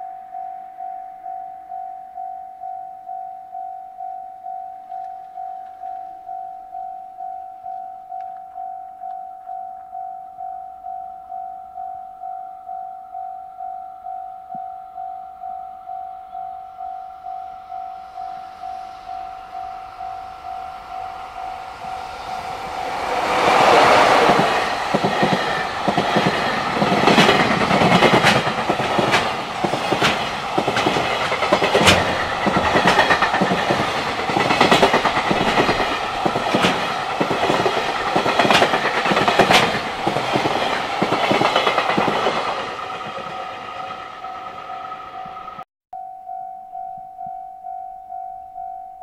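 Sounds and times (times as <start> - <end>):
wheel-on-rail rush: 19.0 - 45.6
sharp clacks over rail joints: 24.3 - 42.4.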